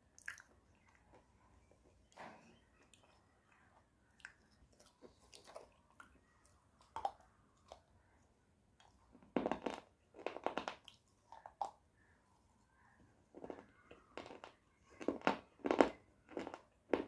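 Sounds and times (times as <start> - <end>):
teeth crunching clay bar: 8.8 - 12.2, 13.3 - 17.0.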